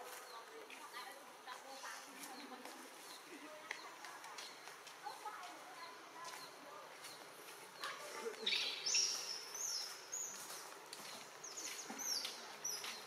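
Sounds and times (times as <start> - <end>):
high-pitched chirping calls: 7.8 - 10.6.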